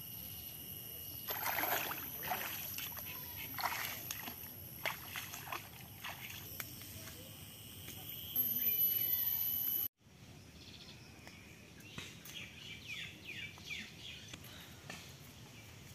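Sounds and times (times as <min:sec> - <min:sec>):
footsteps splashing in muddy water: 0:01.3 - 0:06.6.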